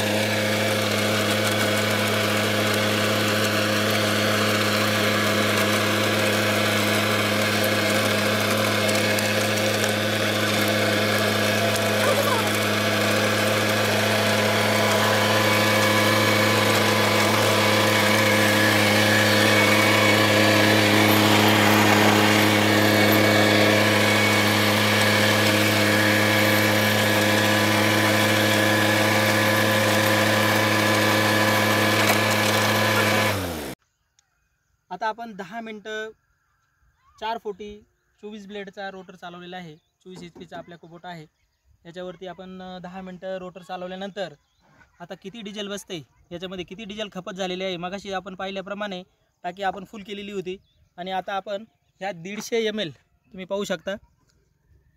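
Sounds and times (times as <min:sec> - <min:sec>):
tractor diesel engine under load: 0:00.0 - 0:33.8.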